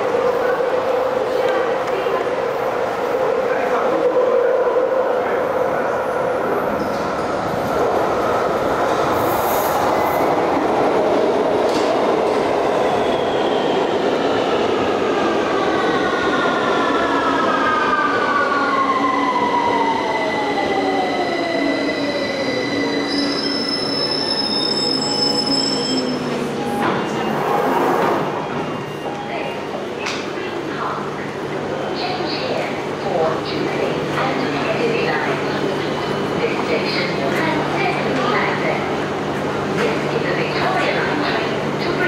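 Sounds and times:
train braking: 16.9 - 29.7.

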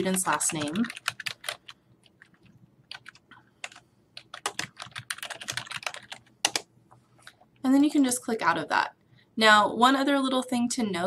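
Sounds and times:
typing on computer keyboard: 0.0 - 6.7.

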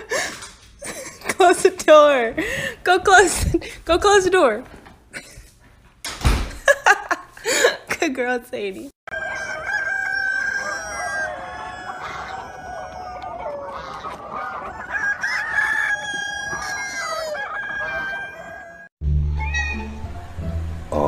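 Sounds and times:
chickens clucking: 9.1 - 18.8
roosters crowing: 9.1 - 20.0.

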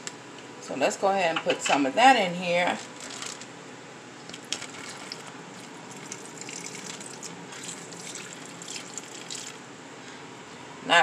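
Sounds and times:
liquid pouring into plastic bag: 2.8 - 3.5, 4.3 - 9.6.

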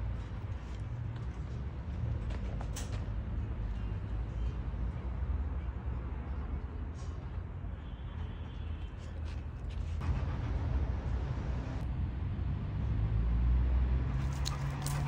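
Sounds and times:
motor vehicle rumble: 9.1 - 15.0
low engine hum: 9.7 - 15.0.

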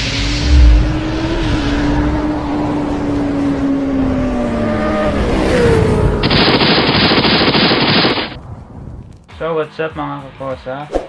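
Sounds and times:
loud rushing noise: 0.0 - 4.2, 5.6 - 8.4
motorcycle engine: 0.0 - 8.4.

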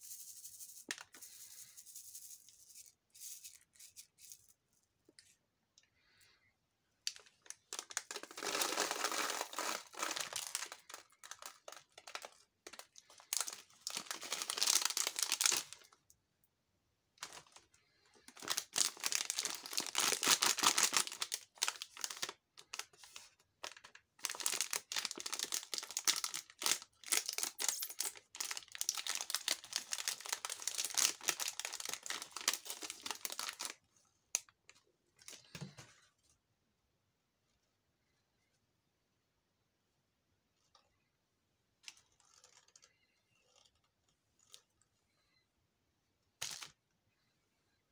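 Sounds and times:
plastic wrapper crinkling: 7.0 - 16.0, 17.2 - 35.6
wrapper tearing open: 7.1 - 15.9, 18.4 - 22.9, 23.6 - 33.8.

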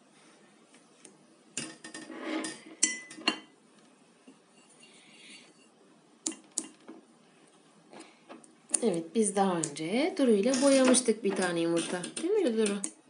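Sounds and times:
metal tool clinking on ceramic: 2.5 - 3.5.

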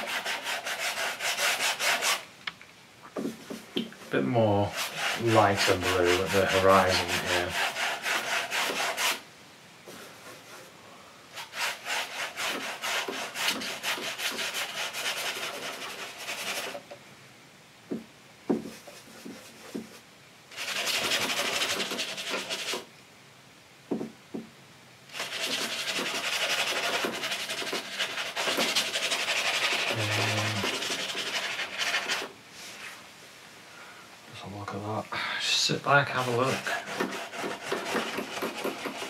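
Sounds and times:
brush scrubbing on canvas: 0.0 - 2.2, 3.2 - 9.2, 9.9 - 10.8, 11.4 - 16.8, 18.5 - 22.9, 25.1 - 33.1, 35.5 - 39.0
soft knocks: 17.9 - 19.9, 23.9 - 24.5.

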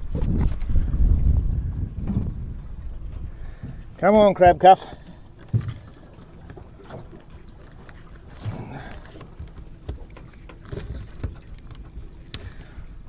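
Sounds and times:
wind rumble on microphone: 0.0 - 4.6.

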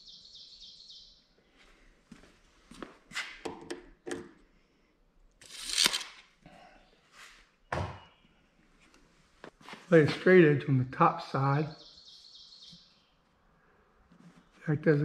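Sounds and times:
tape measure blade retracting: 5.4 - 6.3.

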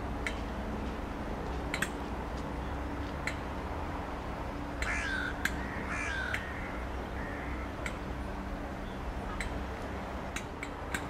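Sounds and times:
crow cawing: 4.8 - 7.7.

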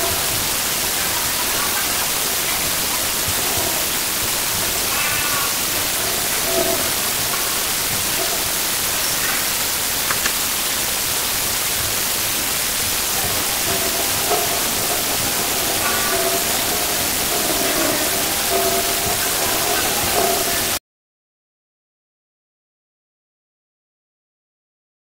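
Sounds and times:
children's voices in a hall: 0.0 - 10.3, 11.1 - 20.8
loud hiss: 0.0 - 20.8.

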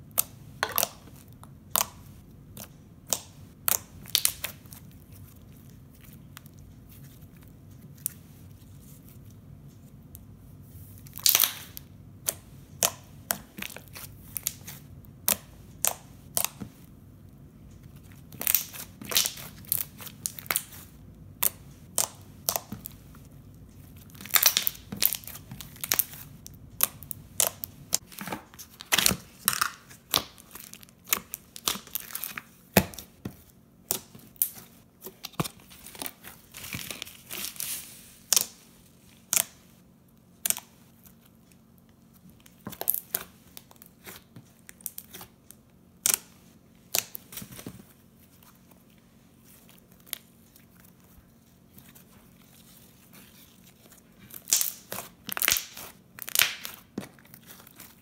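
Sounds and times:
slime popping and crackling: 0.1 - 6.5, 11.1 - 16.7, 18.0 - 33.2, 53.3 - 58.0.

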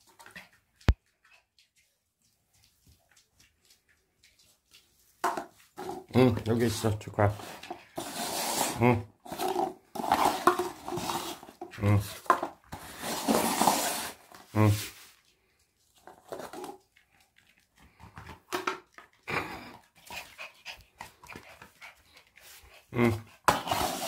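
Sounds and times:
paper cups sliding on wooden floor: 5.2 - 15.2, 16.0 - 16.8, 22.4 - 24.0.

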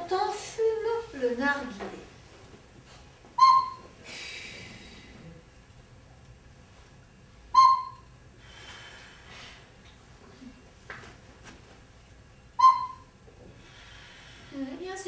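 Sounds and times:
wooden pipe whistle notes: 3.3 - 4.0, 7.5 - 8.1, 12.6 - 13.1
breathy exhale: 4.0 - 5.4, 8.4 - 9.8, 13.5 - 14.7.

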